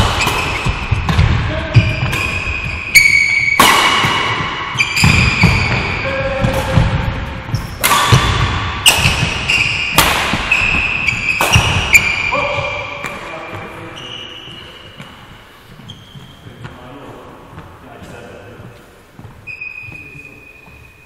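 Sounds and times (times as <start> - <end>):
racket hitting shuttlecock: 0.0 - 13.7
shoes squeaking on sports floor: 0.0 - 21.0
footsteps thumping: 14.5 - 21.0.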